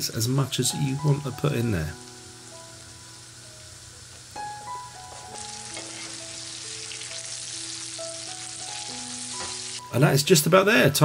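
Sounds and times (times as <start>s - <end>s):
gnocchi sizzling in a frying pan: 0.0s - 10.6s
soft background music: 0.0s - 11.0s
metal spoon turning food: 5.1s - 8.4s.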